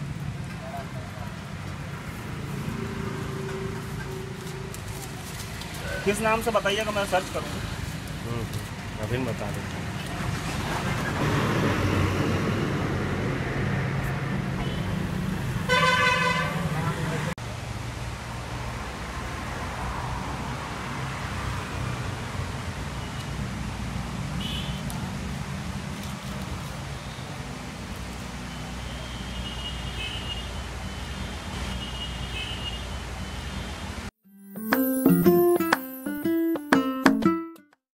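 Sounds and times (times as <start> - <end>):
street traffic rumble: 0.0 - 34.2
vehicle horn honking: 15.7 - 17.1.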